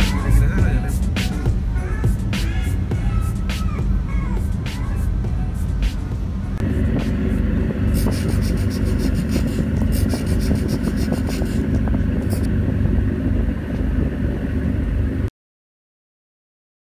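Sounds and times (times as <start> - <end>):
ship engines rumbling: 0.0 - 15.3
wind on microphone: 0.0 - 15.3.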